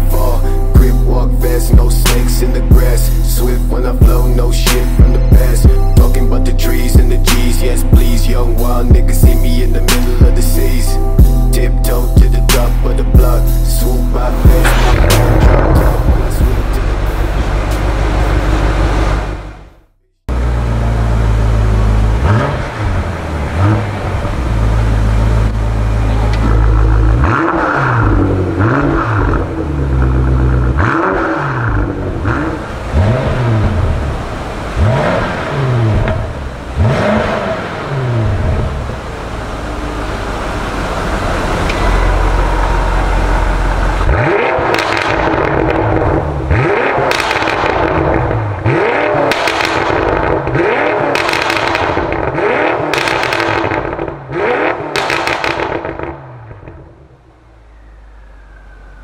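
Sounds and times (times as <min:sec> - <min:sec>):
car engine revving: 0:00.0 - 0:59.0
exhaust pops and crackles: 0:44.0 - 0:57.0.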